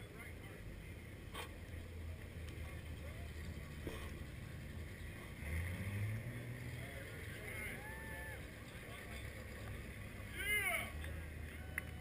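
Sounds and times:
distant engines rumbling: 0.0s - 12.0s
engine revving: 2.7s - 10.3s.

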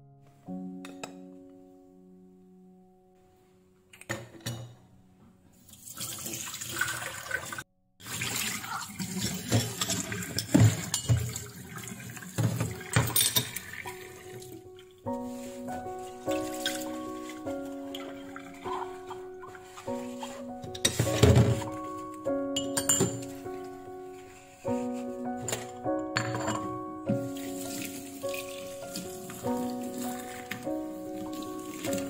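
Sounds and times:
soft background music: 0.0s - 5.7s, 10.0s - 32.0s.

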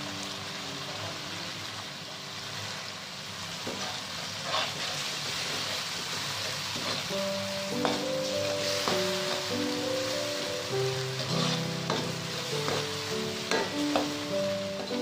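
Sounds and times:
chili paste sizzling in a wok: 0.0s - 15.0s
spatula scraping a wok: 3.7s - 7.2s, 11.2s - 15.0s
background music: 7.1s - 15.0s.

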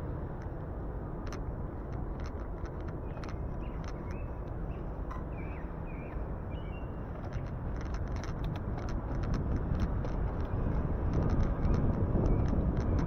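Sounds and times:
wind and road noise: 0.0s - 13.0s
light ticks: 0.3s - 5.3s
bird chirps: 3.1s - 7.1s.

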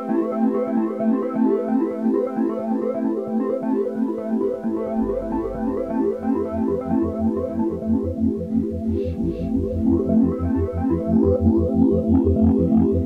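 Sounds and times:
deep bass line: 4.8s - 13.0s.

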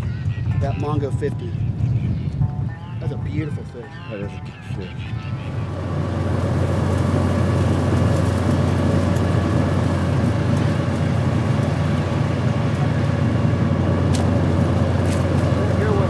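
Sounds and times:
boat motor droning: 0.0s - 16.0s.

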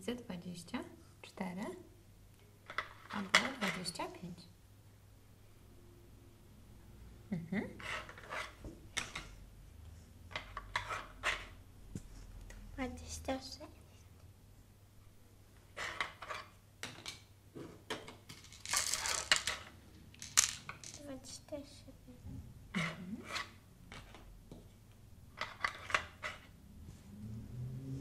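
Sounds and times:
wooden tiles clicking and knocking: 2.6s - 4.0s, 7.8s - 9.4s, 10.2s - 11.6s, 15.8s - 17.3s, 17.9s - 21.1s, 25.3s - 26.5s
beads clinking rattle: 18.4s - 21.1s.

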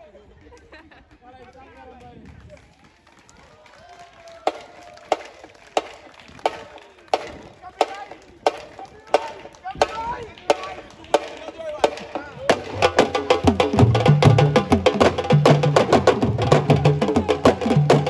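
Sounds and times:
percussion band with wood block: 4.4s - 18.0s
sharp wooden clacks marching beat: 4.5s - 18.0s
voices calling out: 6.0s - 18.0s.

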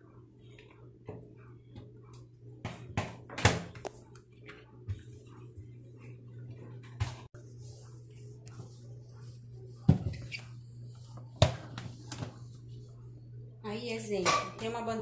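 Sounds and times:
cloth wiping stone countertop: 7.4s - 13.1s.

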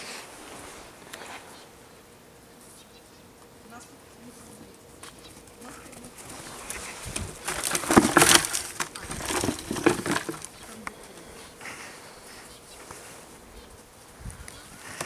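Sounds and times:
twigs and leaves rustling and snapping: 4.9s - 15.0s.

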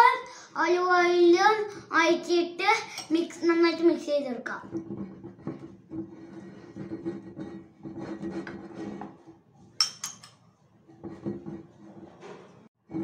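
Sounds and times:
spoon scraping ceramic bowl: 4.6s - 13.0s
spoon clinking against bowl: 9.8s - 10.4s.

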